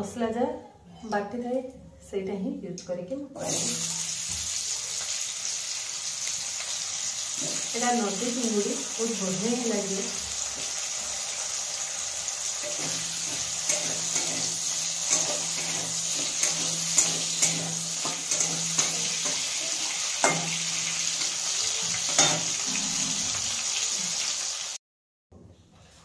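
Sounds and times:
potatoes sizzling in oil: 0:03.4 - 0:24.8
metal spatula scraping pan: 0:12.4 - 0:23.5.

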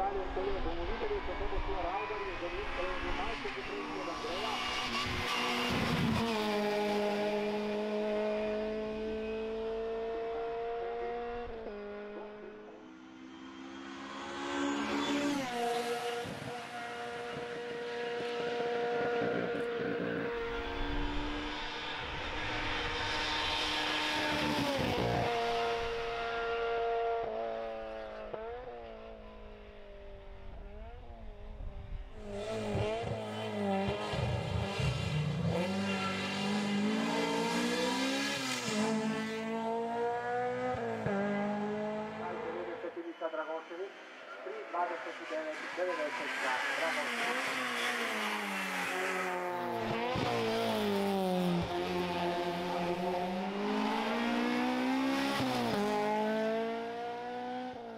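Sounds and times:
race car engine revving: 0:00.0 - 0:43.2, 0:43.9 - 0:57.9.

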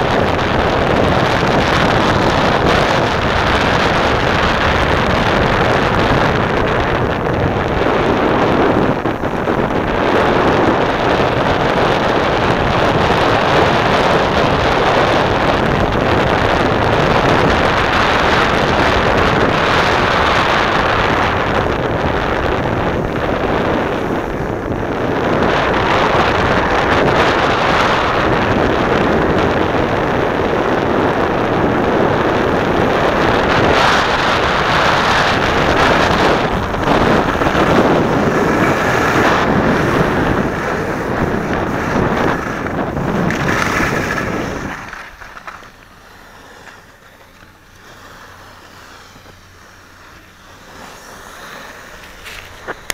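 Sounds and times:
skis sliding on packed snow: 0:00.0 - 0:52.9
wind rushing over microphone: 0:00.0 - 0:52.9.

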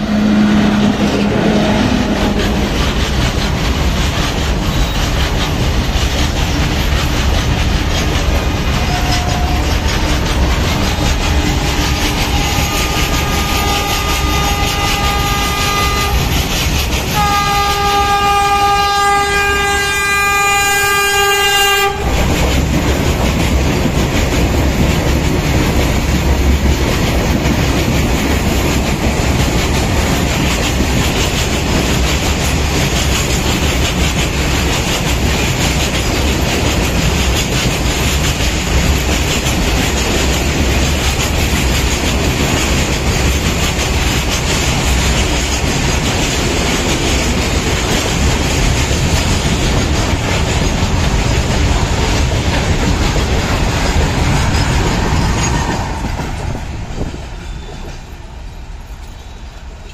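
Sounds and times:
train horn blasts: 0:00.0 - 0:02.6, 0:08.7 - 0:16.4, 0:17.1 - 0:22.4
train wheels clattering: 0:00.0 - 0:59.9.

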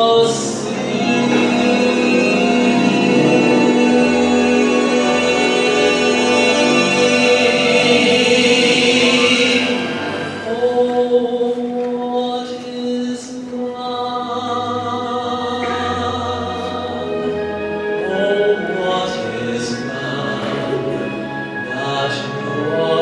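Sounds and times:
man singing sacred solo: 0:00.0 - 0:17.2.

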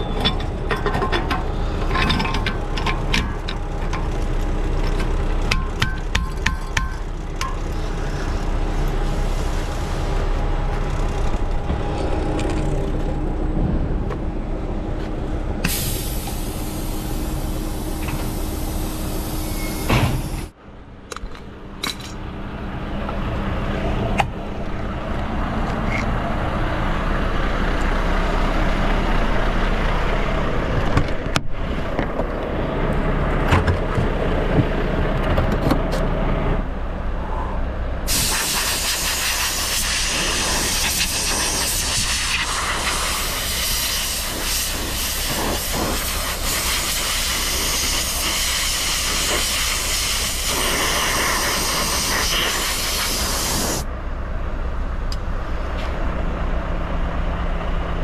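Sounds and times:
low machine hum: 0:00.0 - 0:38.1
air hissing: 0:15.6 - 0:20.5, 0:38.1 - 0:53.9
compressed-air blow gun hissing: 0:15.7 - 0:20.5, 0:38.1 - 0:53.8.

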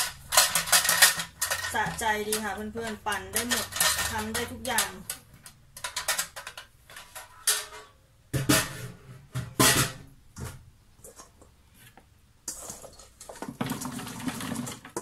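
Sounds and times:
plastic parts being handled: 0:00.0 - 0:07.9
spoon knocking and scraping: 0:00.0 - 0:10.0.

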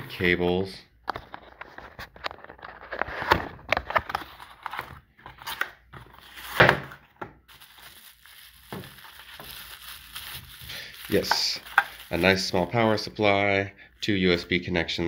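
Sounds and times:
bubble wrap crinkling: 0:06.1 - 0:13.3.

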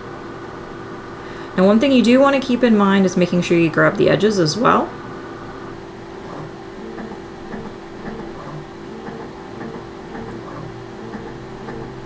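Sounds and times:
machine hum: 0:00.0 - 0:12.0
computer mouse clicks: 0:06.3 - 0:12.0.

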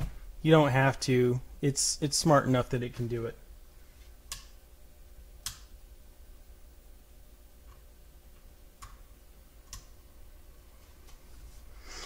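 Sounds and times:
computer mouse clicking: 0:09.6 - 0:09.9.

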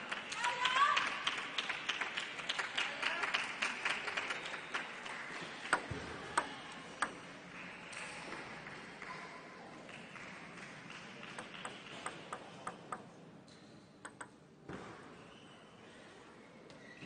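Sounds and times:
people clapping: 0:00.0 - 0:13.0
table tennis ball bouncing: 0:05.7 - 0:07.2, 0:11.3 - 0:13.1, 0:14.0 - 0:14.4.

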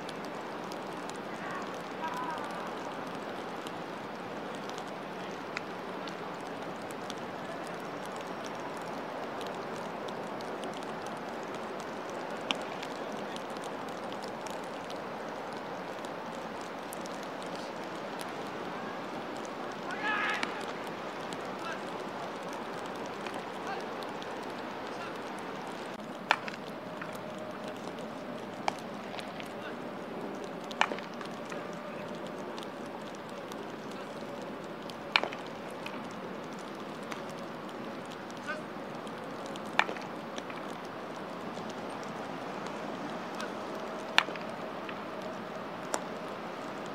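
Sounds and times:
faint clicks: 0:00.0 - 0:46.9
outdoor background noise: 0:00.0 - 0:46.9
steady background noise: 0:00.0 - 0:46.9.

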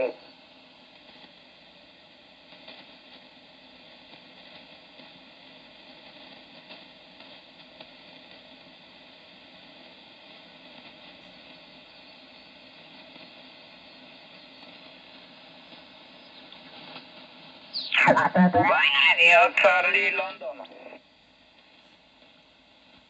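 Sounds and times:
radio static hiss: 0:00.0 - 0:00.3, 0:09.0 - 0:21.0.

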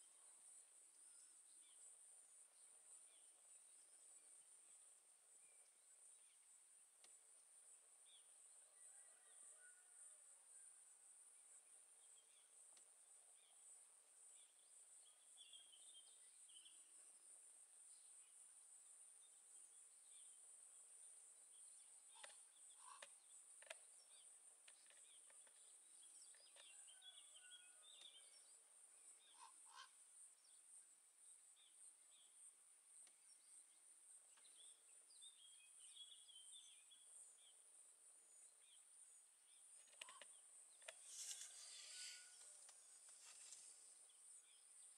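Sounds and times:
steady high-pitched hiss: 0:00.0 - 0:44.9
distant bird chirps: 0:39.7 - 0:43.9.

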